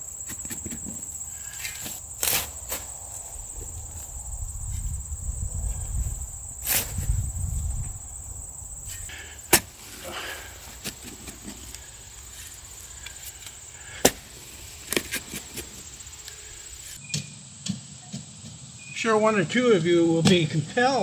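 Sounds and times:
dirt scraping: 0.0s - 17.1s
shovel striking into soil: 1.6s - 2.9s, 6.6s - 7.1s, 8.9s - 10.1s, 14.0s - 14.3s.

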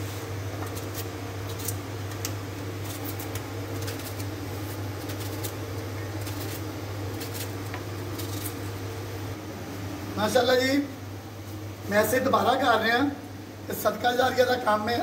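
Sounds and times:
steady low hum: 0.0s - 15.0s
knife slicing onion: 0.6s - 8.7s.

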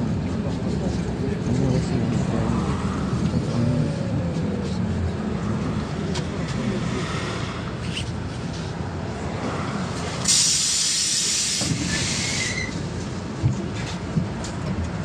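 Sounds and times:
bus diesel engine idling: 7.6s - 15.0s
compressed air hiss: 10.2s - 12.6s.

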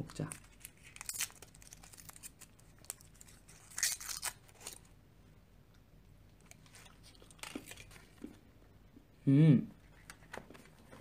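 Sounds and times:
wrapper crinkling and tearing: 0.0s - 4.9s, 6.5s - 8.1s.

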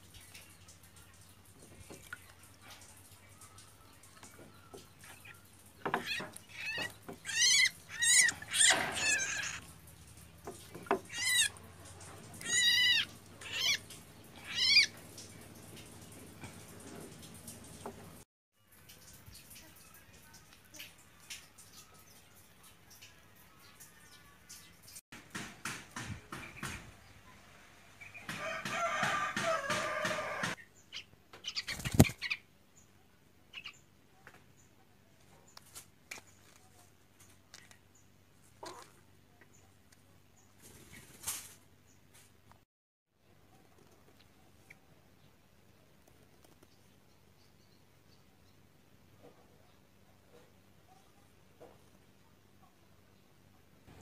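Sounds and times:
water splashes: 0.0s - 25.0s
bird chick high-pitched calls: 3.3s - 9.6s, 29.6s - 32.5s
sharp knocks: 25.2s - 26.9s
bird wings flapping: 31.6s - 32.3s, 40.6s - 41.6s.

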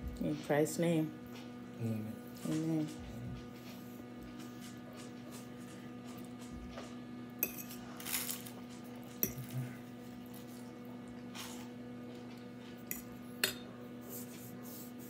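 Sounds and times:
steady low hum: 0.0s - 15.0s
fork clinking on plate: 7.4s - 7.8s, 12.9s - 13.7s.

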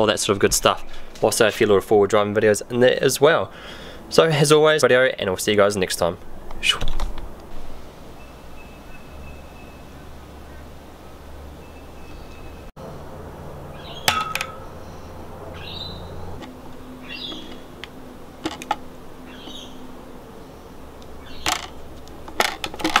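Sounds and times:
low steady hum: 5.2s - 23.0s
bird chirping: 8.1s - 12.7s, 13.7s - 17.8s, 19.2s - 21.8s.

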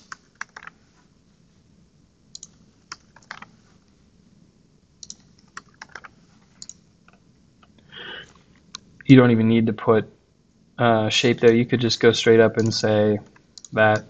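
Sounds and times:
computer keyboard typing: 0.0s - 0.8s, 2.3s - 3.5s, 5.0s - 6.8s, 12.6s - 12.9s.

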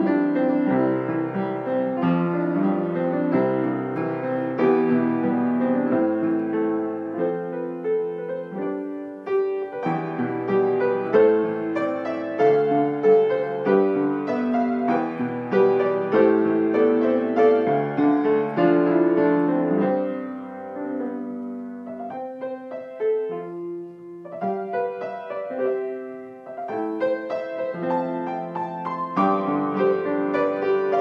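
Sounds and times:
solo piano music: 0.0s - 31.0s.

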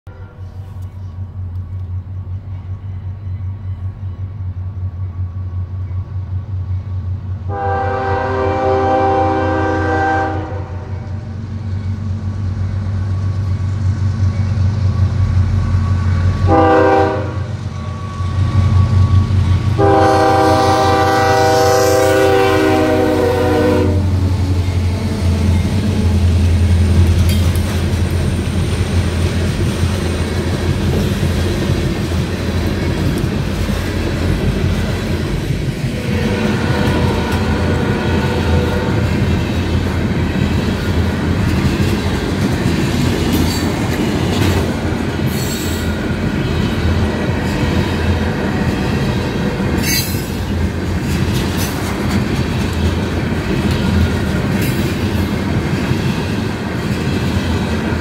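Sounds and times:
locomotive horn blasts: 0.1s - 0.8s, 7.5s - 11.2s, 16.4s - 24.4s, 36.0s - 39.2s
train wheel clatter: 24.1s - 58.0s.

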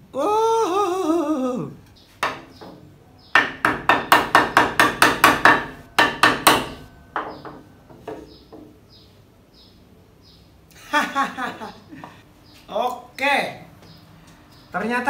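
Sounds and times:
wooden mallet knocking on wood: 2.2s - 8.8s.

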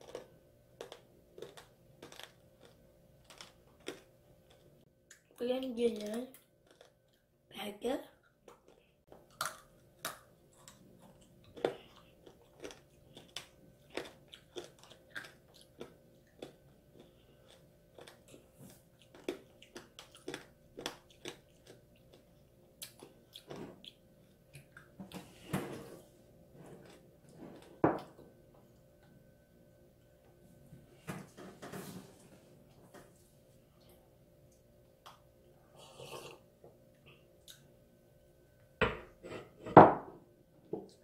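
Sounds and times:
crunchy candy chewing: 0.0s - 4.7s, 6.0s - 7.3s, 8.5s - 24.9s.

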